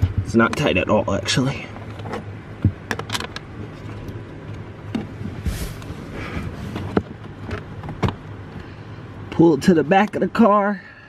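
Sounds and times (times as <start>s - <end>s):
steady low hum: 0.0s - 11.0s
small clicks and knocks: 1.8s - 5.1s
rustling: 5.0s - 8.0s.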